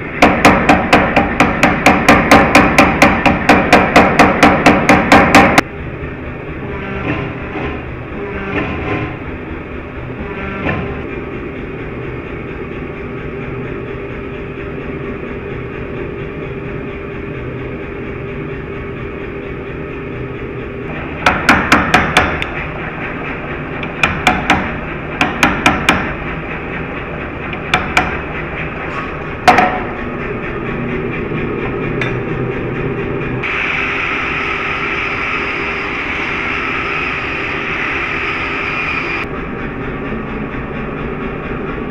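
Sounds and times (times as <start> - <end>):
hammer striking steel on anvil: 0.2 - 5.6, 21.2 - 22.6, 23.8 - 26.2, 27.5 - 28.2, 29.4 - 30.1
forge drone: 22.4 - 41.9.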